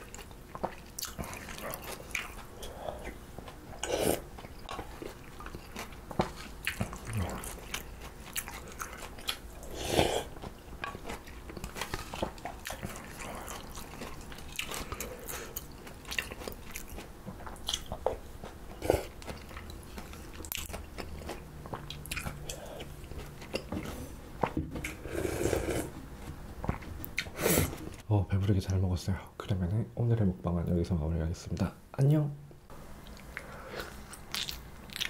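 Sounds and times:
wet chewing and crunching: 0.0s - 25.0s, 33.0s - 35.0s
slurping broth: 9.6s - 10.3s, 24.8s - 26.0s.

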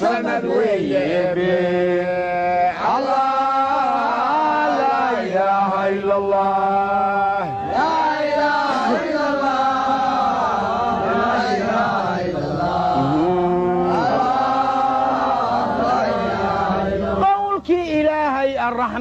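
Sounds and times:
men chanting devotional melody: 0.0s - 19.0s
steady low drone: 12.2s - 15.0s.

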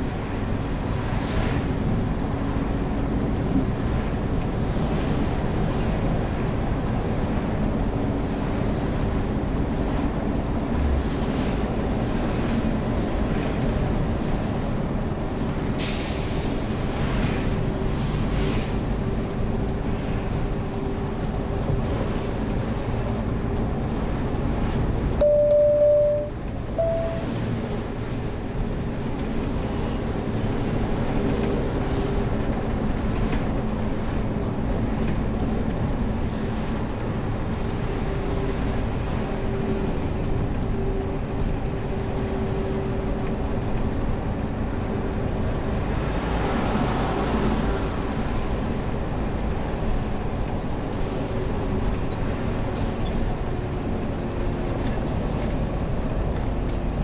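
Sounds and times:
engine and road rumble: 0.0s - 57.0s
short beeps: 25.2s - 27.3s.

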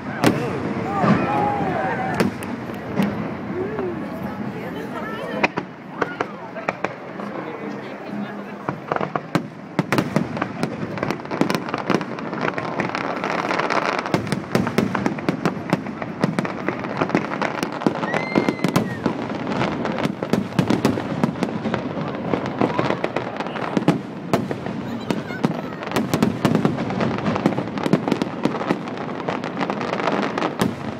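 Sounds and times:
fireworks banging: 0.0s - 30.9s
firework whistle: 17.6s - 19.3s.

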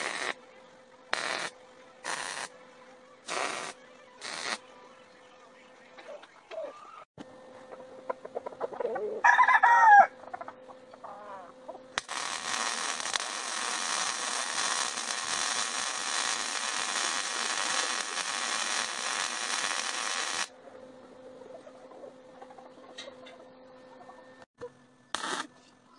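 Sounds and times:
welder arc crackling: 0.0s - 0.4s, 1.1s - 2.5s, 3.2s - 4.6s, 12.0s - 20.5s, 25.1s - 25.5s
rooster crowing: 8.9s - 10.3s.

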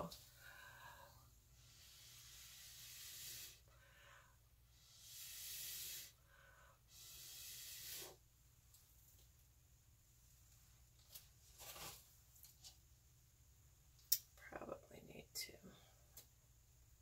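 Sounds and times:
breath blown through a straw: 1.6s - 3.7s, 4.7s - 8.2s.

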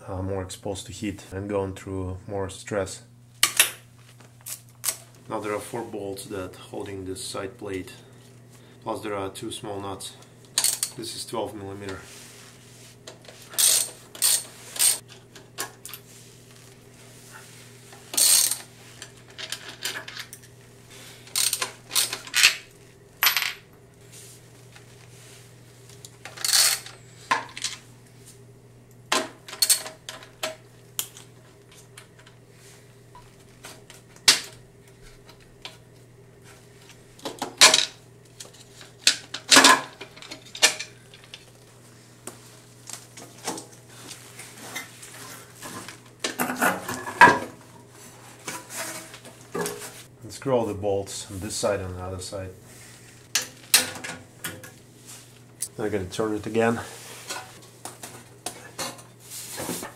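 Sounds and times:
faint steady hum: 0.0s - 59.9s.

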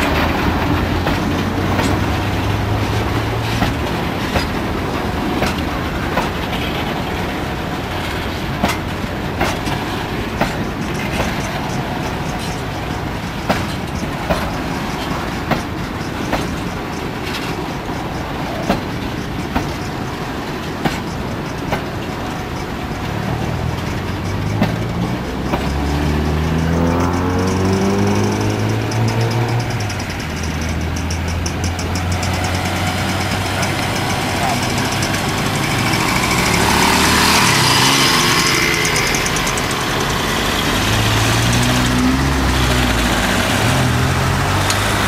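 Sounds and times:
freight train rumbling past: 0.0s - 45.0s
wheel clicks over rail joints: 0.0s - 45.0s
engine revving: 23.3s - 45.0s.

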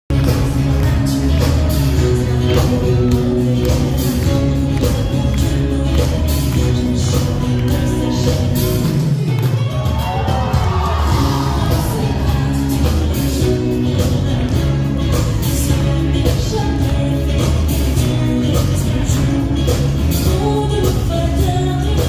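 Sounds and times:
live rock band playing: 0.1s - 22.0s
woman singing: 0.2s - 22.0s.

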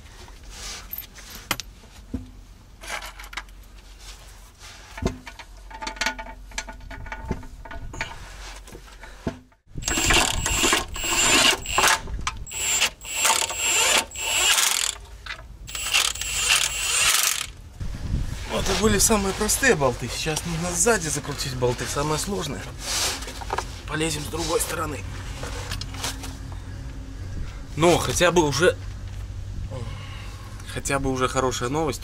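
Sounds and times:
bolts clicking and knocking: 5.0s - 17.6s
impact wrench whining bursts: 9.8s - 15.0s, 15.7s - 17.6s.

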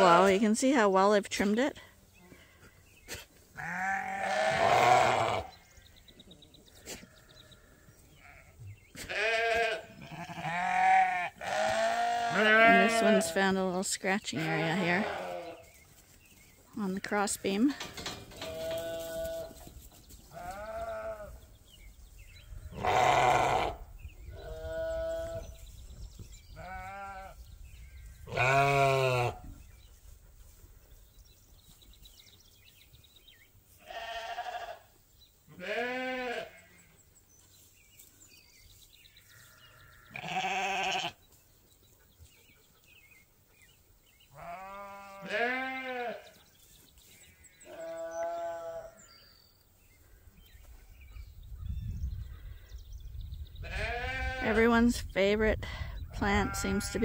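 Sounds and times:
sheep bleating: 3.6s - 5.6s, 8.2s - 13.4s, 14.4s - 15.6s, 18.4s - 19.5s, 20.3s - 21.4s, 22.7s - 23.8s, 26.6s - 27.4s, 28.3s - 29.4s, 33.8s - 34.9s, 35.5s - 37.0s, 39.8s - 41.2s, 44.4s - 46.3s, 47.6s - 49.0s, 53.6s - 54.6s.

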